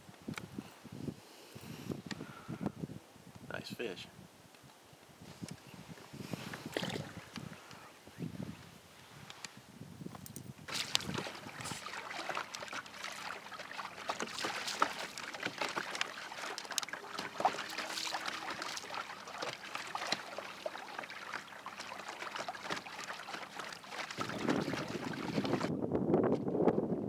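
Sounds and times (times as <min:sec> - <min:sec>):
waves lapping against boat hull: 0:06.1 - 0:07.9, 0:10.7 - 0:25.7.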